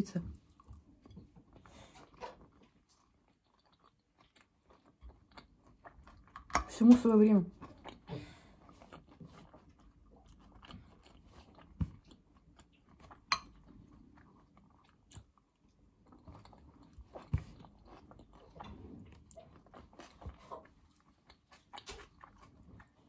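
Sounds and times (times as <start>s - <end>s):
person chewing food: 0.4s - 6.7s, 7.5s - 23.0s.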